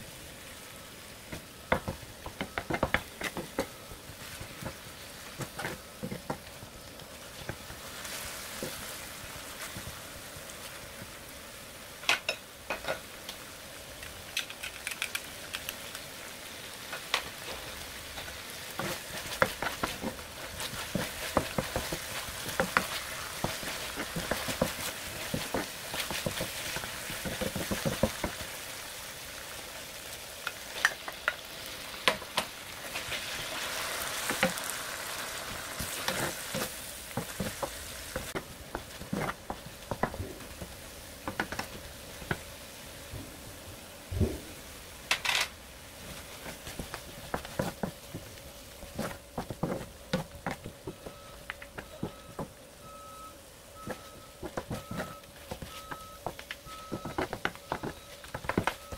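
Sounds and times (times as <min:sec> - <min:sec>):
food sizzling in a pan: 0:00.0 - 0:58.9
wooden spatula scraping a pan: 0:17.4 - 0:28.4, 0:35.8 - 0:42.4.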